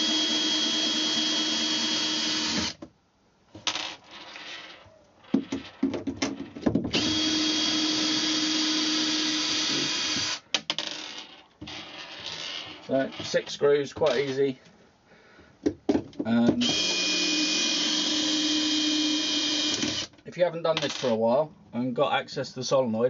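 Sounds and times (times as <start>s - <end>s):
cordless drill running: 0.0s - 2.8s, 6.9s - 10.4s, 16.7s - 20.1s.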